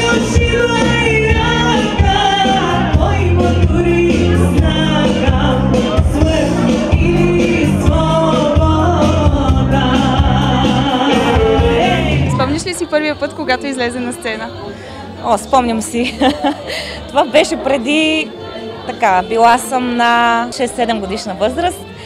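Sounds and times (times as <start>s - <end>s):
amplified backing music with beat: 0.0s - 13.1s
woman singing into microphone: 0.0s - 22.0s.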